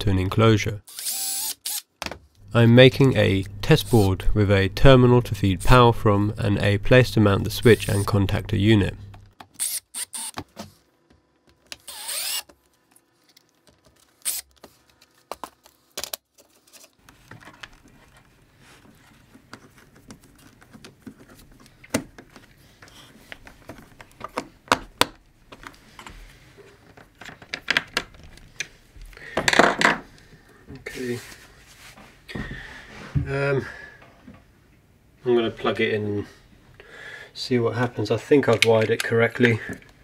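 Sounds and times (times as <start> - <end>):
cordless drill whirring: 0.9 - 1.9, 9.6 - 10.4, 11.8 - 12.5, 14.2 - 14.5
faint steady hum: 2.3 - 16.2.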